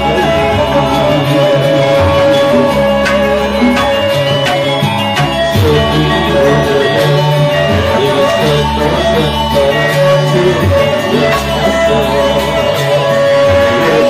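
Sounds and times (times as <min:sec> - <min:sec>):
live ensemble music: 0:00.0 - 0:14.0.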